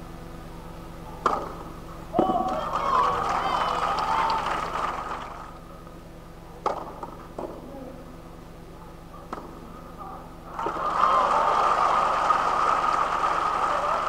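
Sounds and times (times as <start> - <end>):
tennis racket hitting ball: 1.2 - 1.6, 6.6 - 7.6
crowd murmur: 2.1 - 5.8, 7.5 - 14.0.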